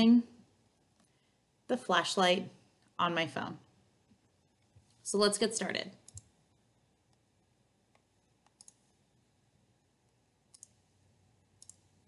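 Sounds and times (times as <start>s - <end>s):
soft clicks: 7.9s - 8.9s, 10.1s - 10.8s, 11.6s - 11.9s.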